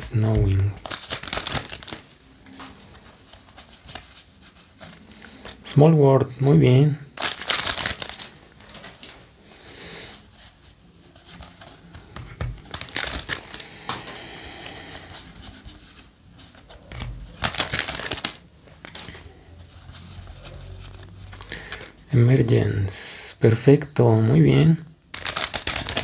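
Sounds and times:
cards rustling by hand: 0.0s - 5.7s, 7.2s - 9.3s, 10.1s - 22.0s, 25.1s - 26.0s
foil wrapper crinkling: 0.3s - 5.6s, 7.2s - 9.2s, 11.2s - 13.9s, 14.6s - 22.0s, 25.1s - 26.0s.

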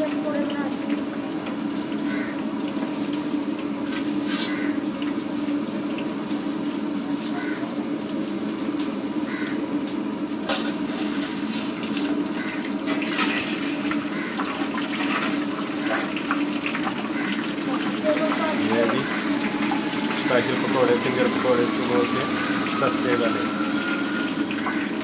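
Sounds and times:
food sizzling in hot oil: 0.0s - 25.0s
oil crackling: 0.0s - 25.0s.

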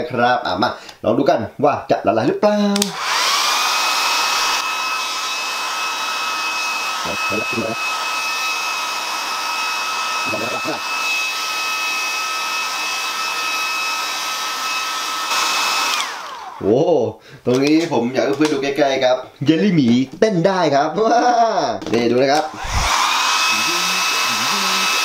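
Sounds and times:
hair dryer running: 2.8s - 16.6s, 22.4s - 25.0s.

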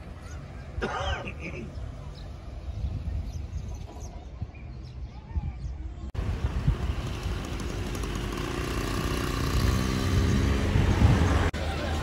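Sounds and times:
low traffic rumble: 0.0s - 12.0s
vehicle engine running: 6.2s - 12.0s.

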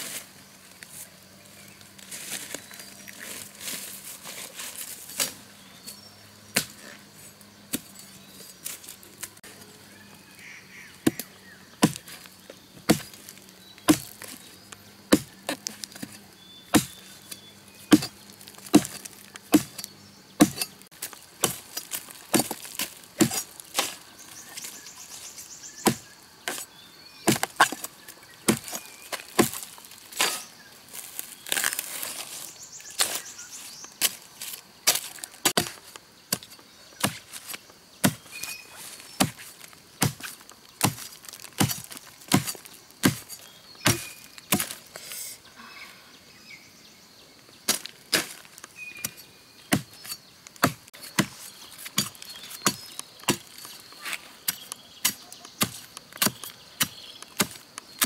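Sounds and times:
blade chopping tubers: 6.5s - 7.0s, 11.0s - 24.7s, 25.8s - 32.4s, 34.0s - 44.9s, 47.7s - 58.0s.

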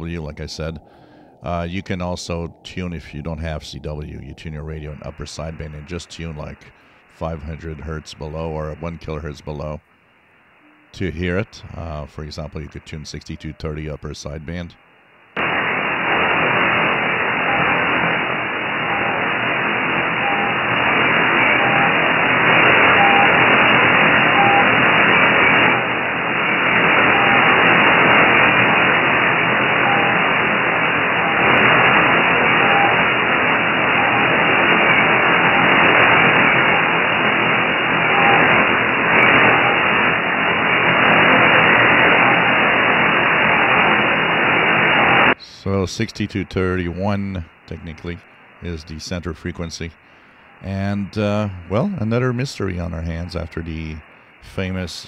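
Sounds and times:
shortwave static hiss: 0.0s - 55.0s
faint short radio beep: 32.6s - 33.0s.

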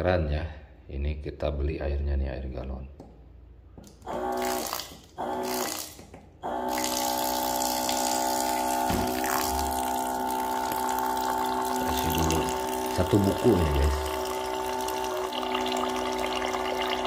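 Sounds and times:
electric pump motor hum: 3.8s - 17.0s.

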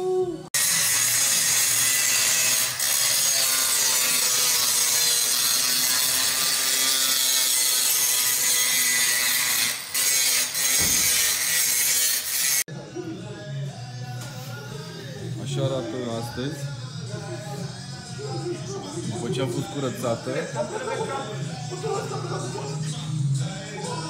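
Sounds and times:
angle grinder cutting steel: 0.6s - 12.7s.

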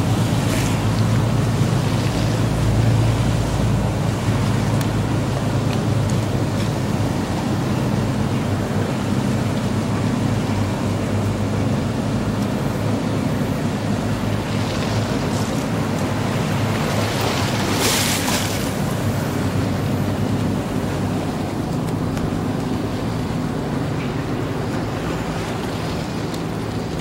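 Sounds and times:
boat engine humming: 0.0s - 27.0s
rush of spray: 0.0s - 27.0s
waves and wash rushing: 0.0s - 27.0s.

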